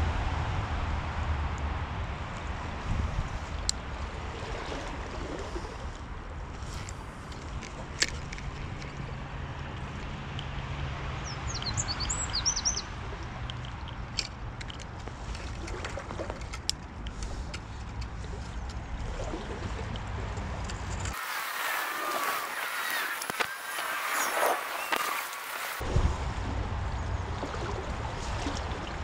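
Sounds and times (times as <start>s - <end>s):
small stream running: 2.4s - 29.0s
bird chirping: 11.2s - 12.9s, 21.3s - 25.8s.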